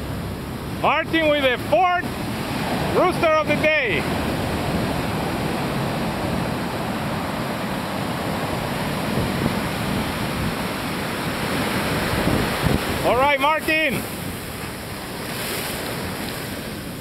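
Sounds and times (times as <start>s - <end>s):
surf breaking on beach: 0.0s - 17.0s.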